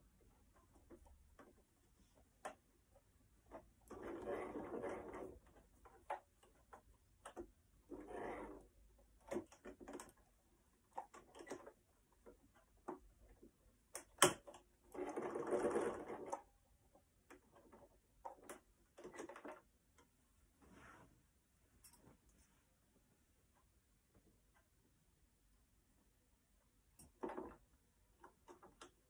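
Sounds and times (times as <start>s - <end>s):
sewing machine stitching: 3.5s - 6.1s, 7.9s - 10.2s, 14.2s - 16.5s.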